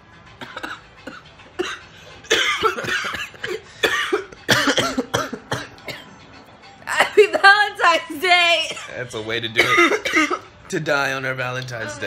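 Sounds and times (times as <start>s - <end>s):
person coughing: 0.4s - 6.1s, 8.6s - 9.0s, 9.6s - 10.5s.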